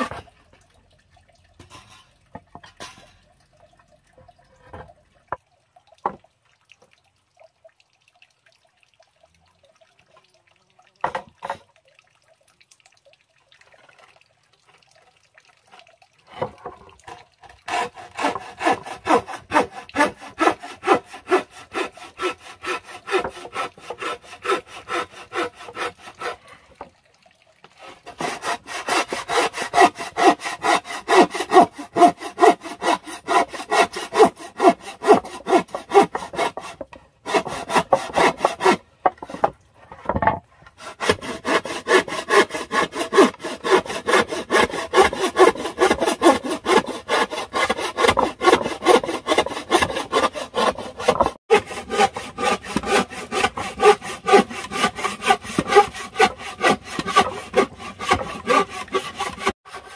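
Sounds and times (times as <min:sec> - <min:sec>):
hand saw cutting wood: 0:00.0 - 0:00.3, 0:16.3 - 0:26.6, 0:27.8 - 0:59.9.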